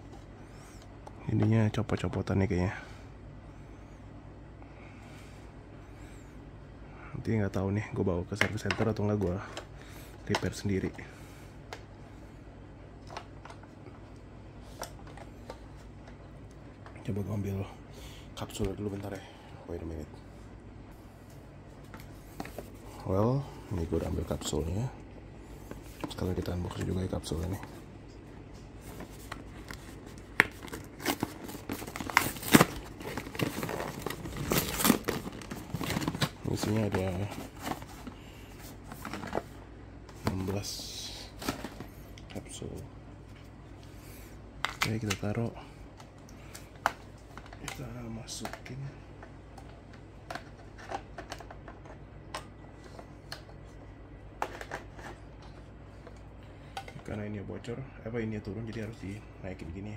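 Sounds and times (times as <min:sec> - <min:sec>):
cardboard box tearing and crinkling: 0:30.7 - 0:36.3.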